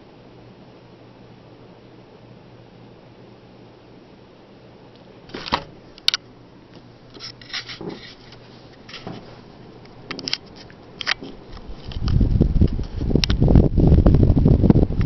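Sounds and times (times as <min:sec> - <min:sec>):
ceiling fan humming: 0:00.0 - 0:15.0
camera handling clicks and rustles: 0:10.1 - 0:12.2.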